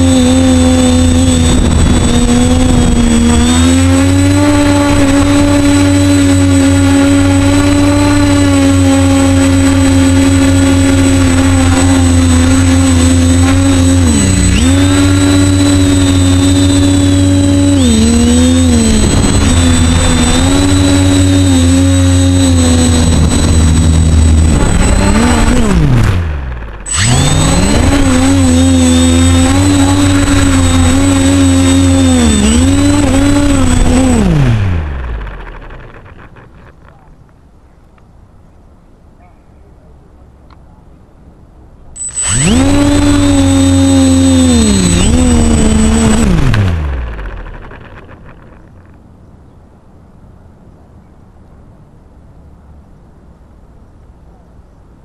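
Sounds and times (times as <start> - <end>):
thin high whine: 0.0 - 36.4, 42.0 - 48.6
model aircraft motor and propeller: 0.0 - 37.3, 42.0 - 49.1.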